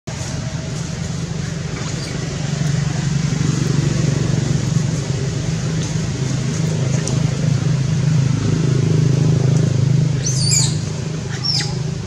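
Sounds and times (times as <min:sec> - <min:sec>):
low motor hum: 0:00.1 - 0:12.0
baby monkey squealing: 0:10.2 - 0:12.0.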